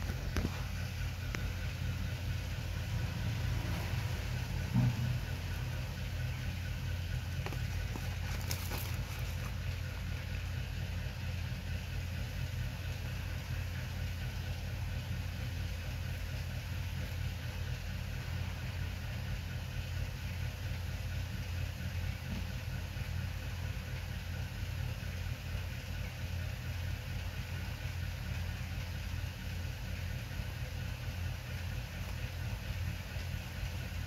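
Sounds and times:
low hum: 0:00.0 - 0:19.8.

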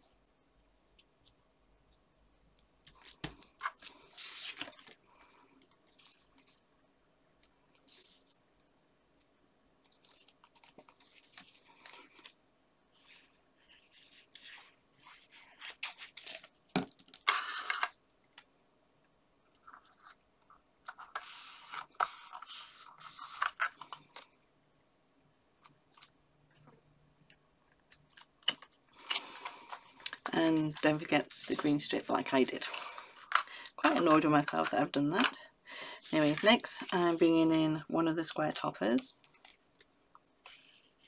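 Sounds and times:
paper rustling and sliding: 0:03.1 - 0:05.0, 0:10.0 - 0:12.3, 0:17.2 - 0:18.0, 0:20.9 - 0:24.3, 0:29.0 - 0:33.5, 0:35.9 - 0:37.4.

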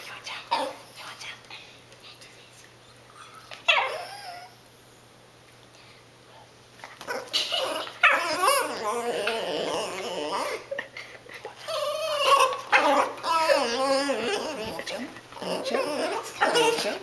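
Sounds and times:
small dog whining: 0:03.2 - 0:04.6, 0:07.1 - 0:10.7, 0:11.6 - 0:17.0.

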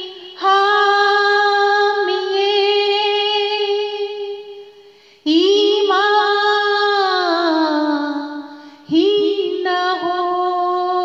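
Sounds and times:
woman singing: 0:00.0 - 0:11.0.

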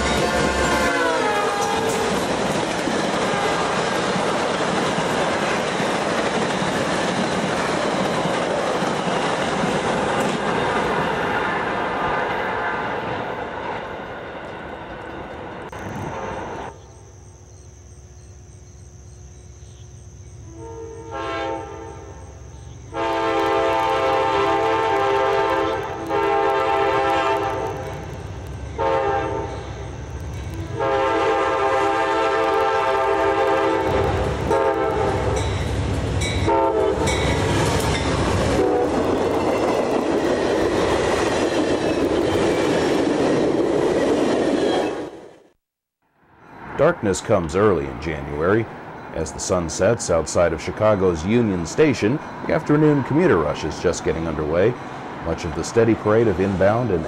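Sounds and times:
locomotive horn blasts: 0:00.0 - 0:02.1, 0:20.4 - 0:22.1, 0:22.9 - 0:27.8, 0:28.8 - 0:29.6, 0:30.7 - 0:35.4, 0:36.4 - 0:37.2, 0:38.5 - 0:39.0
train rumbling: 0:00.0 - 0:45.5, 0:46.5 - 0:57.0
train wheel clatter: 0:01.6 - 0:12.4.

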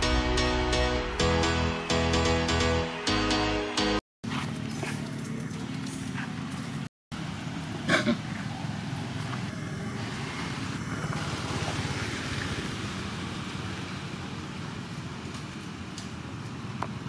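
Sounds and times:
outdoor rumble and hiss: 0:04.3 - 0:17.0.

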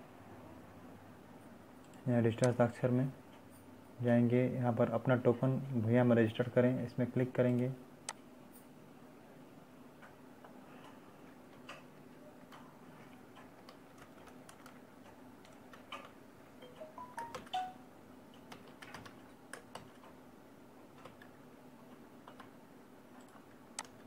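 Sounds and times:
computer keyboard keys clicking: 0:13.3 - 0:17.7, 0:18.3 - 0:20.2, 0:20.9 - 0:21.3, 0:22.2 - 0:22.6, 0:23.2 - 0:24.0.

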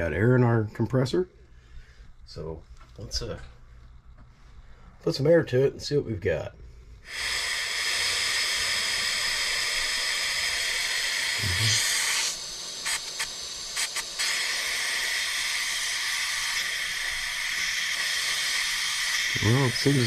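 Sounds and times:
compressed air hissing: 0:06.7 - 0:20.0
short air spurts: 0:07.0 - 0:20.0.

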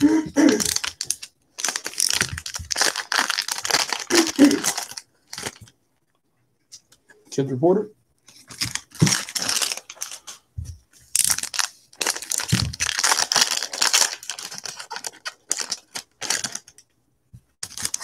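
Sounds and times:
foil wrappers crinkling and tearing: 0:00.0 - 0:05.7, 0:08.4 - 0:10.4, 0:11.1 - 0:16.8, 0:17.6 - 0:18.0.

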